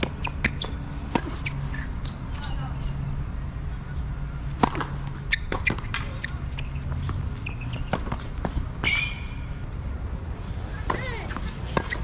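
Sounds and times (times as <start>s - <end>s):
racket hitting tennis ball: 0.0s - 2.4s, 4.4s - 9.4s, 10.8s - 12.0s
tennis ball bouncing: 0.0s - 2.6s, 4.4s - 9.5s, 10.8s - 12.0s
short high squeaks: 0.2s - 2.2s, 5.3s - 9.4s.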